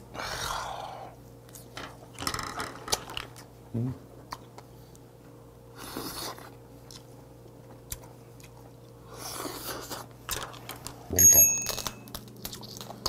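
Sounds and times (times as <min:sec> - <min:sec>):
chewing: 0:05.8 - 0:11.0, 0:12.1 - 0:13.0.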